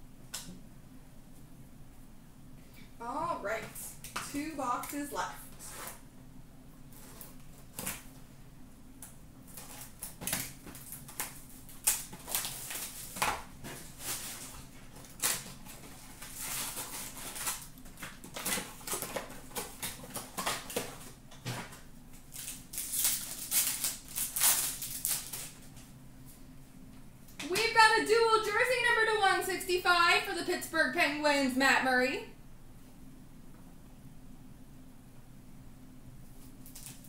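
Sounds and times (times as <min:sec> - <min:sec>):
foil wrappers crinkling and tearing: 0:09.5 - 0:25.9, 0:36.4 - 0:37.0.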